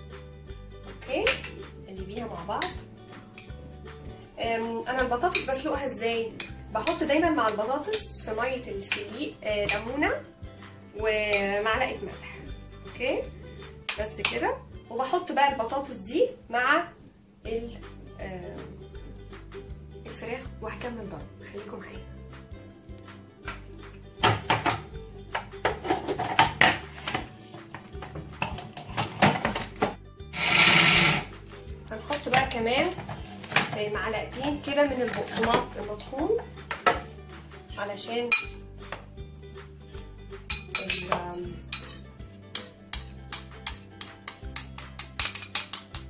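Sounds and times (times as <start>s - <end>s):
background music: 0.0s - 46.0s
metal spoon scraping a plate: 30.4s - 31.3s, 41.7s - 43.1s
metal spoon tapping a bowl: 38.3s - 38.6s, 40.5s - 46.0s.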